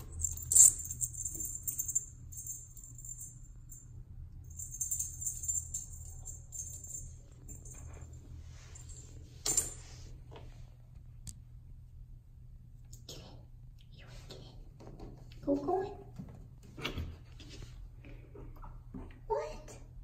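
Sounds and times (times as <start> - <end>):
light metallic jingling: 0.0 - 9.8.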